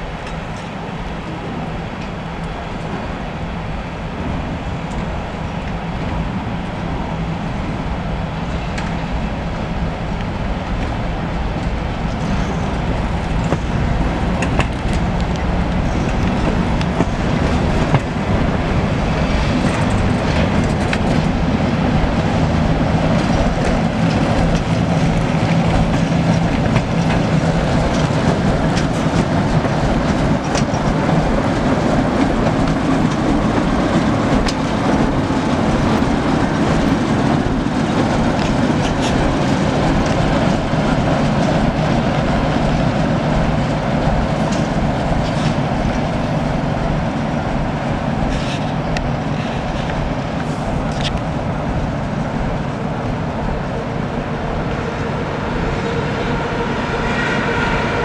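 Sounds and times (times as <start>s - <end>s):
diesel locomotive engine running: 0.0s - 58.0s
wheels clicking over rail joints: 8.6s - 51.8s.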